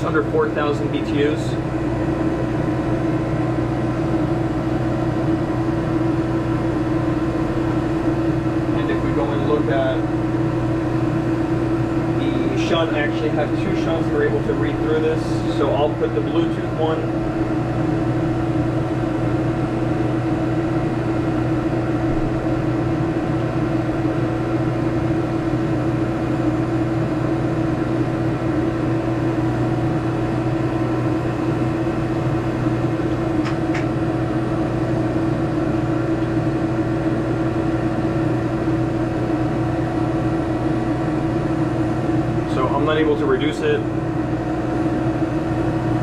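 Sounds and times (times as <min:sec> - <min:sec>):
air conditioner humming: 0:00.0 - 0:46.0.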